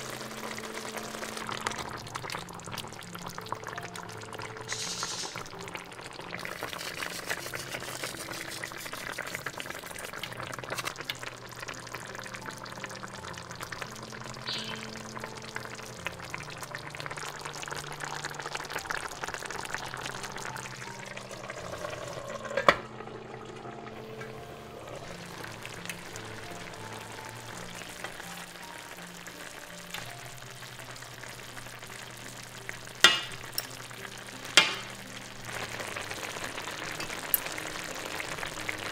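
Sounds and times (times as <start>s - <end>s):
chicken sizzling in a pan: 0.0s - 38.9s
soft background music: 0.0s - 38.9s
forks clinking against pan: 34.6s - 34.9s.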